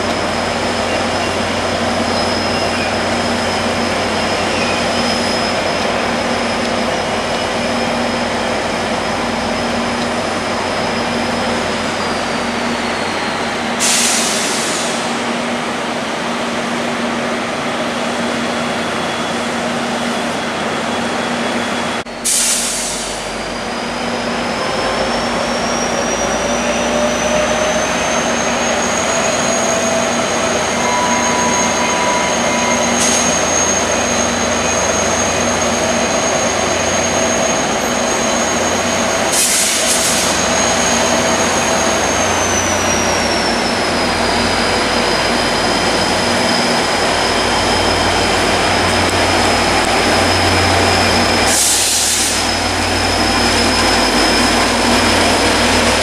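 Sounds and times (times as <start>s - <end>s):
diesel locomotive engine drone: 0.0s - 56.0s
air hiss bursts: 13.8s - 15.1s, 22.2s - 23.2s, 51.5s - 52.6s.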